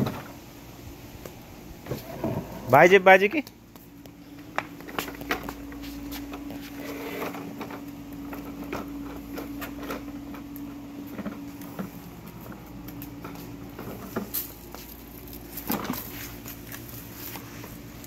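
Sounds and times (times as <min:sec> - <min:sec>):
steady low hum: 0:00.0 - 0:18.0
toy wheels rolling over concrete: 0:04.5 - 0:17.8.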